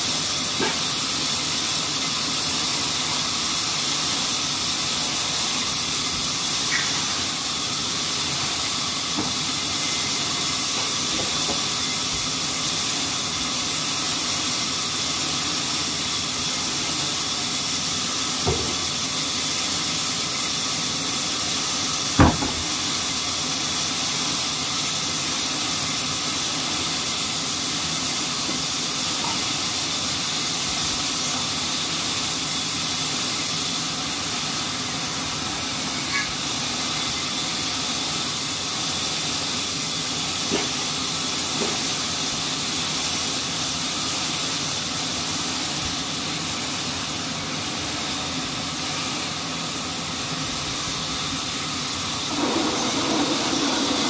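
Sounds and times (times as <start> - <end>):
band saw cutting log: 52.3 - 54.0.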